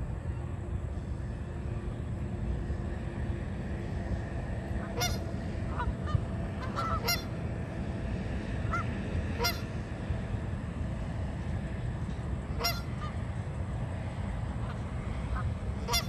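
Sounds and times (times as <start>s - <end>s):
geese honking: 4.6s - 7.4s, 8.6s - 9.9s, 12.5s - 13.2s, 14.6s - 16.0s.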